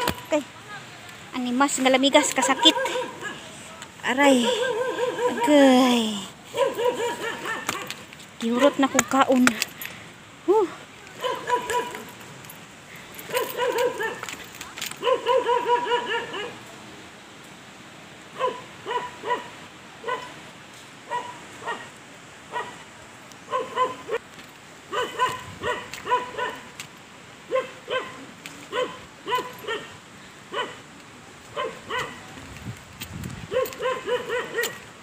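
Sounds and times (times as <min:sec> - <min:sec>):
dog barking: 0:02.2 - 0:03.4, 0:04.3 - 0:05.8, 0:06.5 - 0:07.9, 0:11.2 - 0:12.1, 0:13.3 - 0:14.3, 0:15.0 - 0:16.6, 0:18.4 - 0:20.4, 0:21.1 - 0:21.9, 0:22.5 - 0:22.8, 0:23.5 - 0:24.2, 0:24.9 - 0:26.7, 0:27.5 - 0:30.8, 0:31.5 - 0:32.3, 0:33.5 - 0:34.9.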